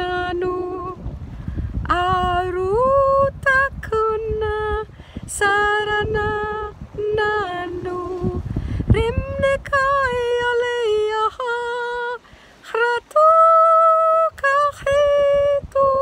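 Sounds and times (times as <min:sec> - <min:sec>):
woman singing: 0:00.0 - 0:01.0, 0:01.8 - 0:16.0.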